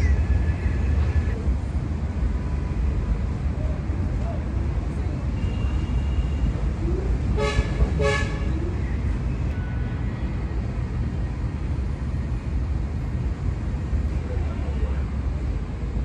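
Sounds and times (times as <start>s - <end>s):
steady low rumble: 0.0s - 9.6s
vehicle horn toots: 7.4s - 8.5s.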